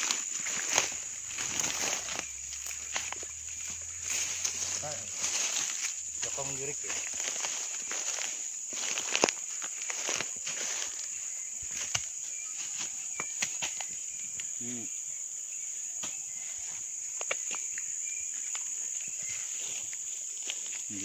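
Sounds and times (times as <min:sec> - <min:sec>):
footsteps: 0:00.0 - 0:14.0
rustling of plants: 0:00.0 - 0:14.9, 0:16.0 - 0:21.0
high-pitched insect drone: 0:00.0 - 0:21.0.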